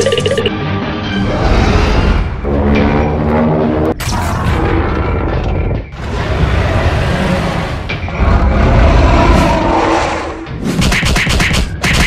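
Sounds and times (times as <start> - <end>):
dramatic background music: 0.1 - 12.0
monster roaring: 4.4 - 10.5.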